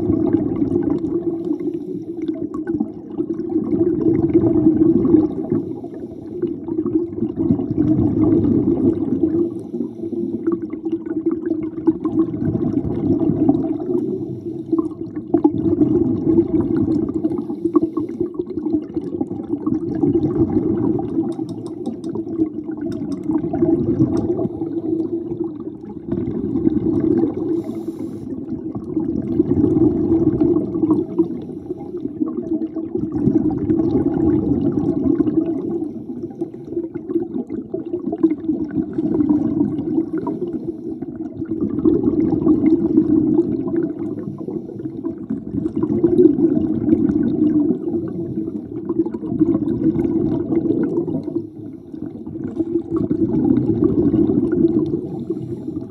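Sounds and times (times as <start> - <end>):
exhaled bubbles rushing: 0.0 - 55.9
diver breathing through regulator: 1.4 - 2.4, 5.5 - 6.6, 9.4 - 10.6, 13.9 - 14.9, 17.3 - 18.4, 27.4 - 28.4, 31.0 - 32.2, 40.0 - 41.1, 44.0 - 45.0, 54.9 - 55.9.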